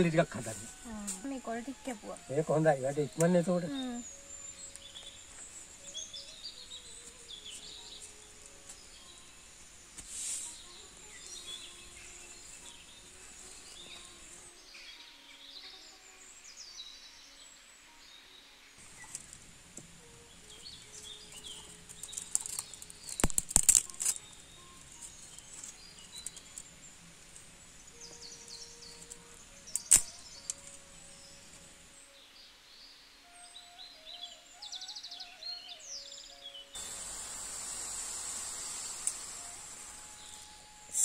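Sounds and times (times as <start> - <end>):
high insect drone: 0.0 - 35.3, 36.3 - 41.0
birds chirping: 0.0 - 41.0
dry twigs snapping: 21.3 - 24.3, 29.0 - 30.9, 37.6 - 40.4.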